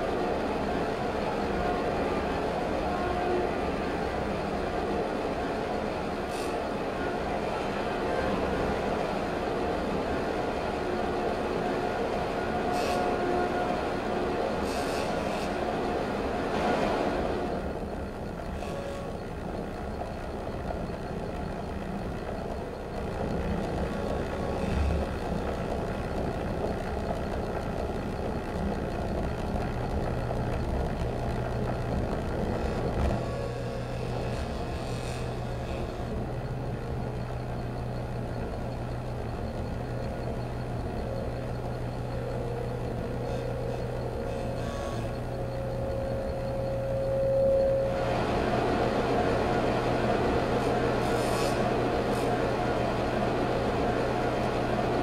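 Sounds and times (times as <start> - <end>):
steady held tone: 39.0 - 51.0.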